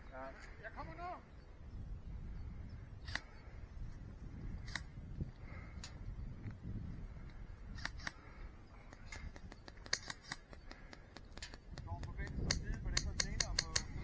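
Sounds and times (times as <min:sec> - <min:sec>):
sharp clicks: 0:03.0 - 0:03.5, 0:04.6 - 0:06.6, 0:07.2 - 0:14.0.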